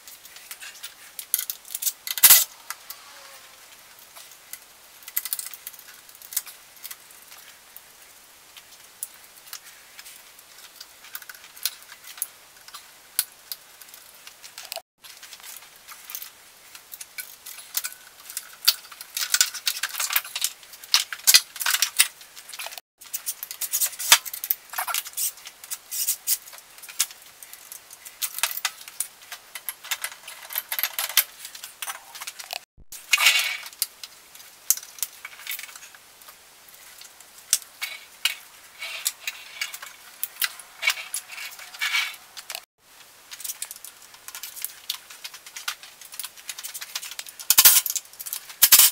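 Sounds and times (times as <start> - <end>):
metal tools and bolts clinking: 0.0 - 2.5, 16.9 - 33.8, 43.3 - 48.9.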